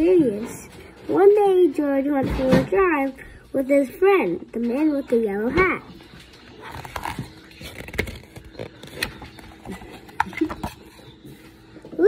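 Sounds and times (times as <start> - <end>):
book pages rustling: 5.6 - 11.8.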